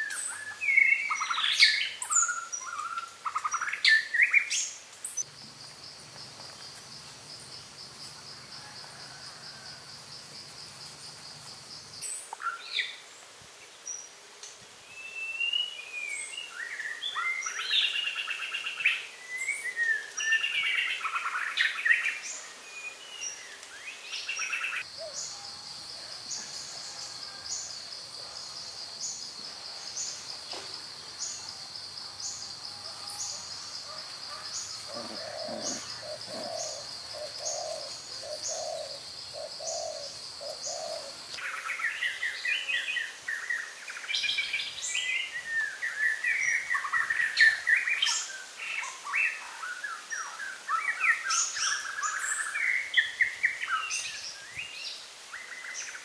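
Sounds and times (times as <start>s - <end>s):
birds chirping: 27.6s - 42.4s
low repeated bird calls: 31.1s - 42.4s.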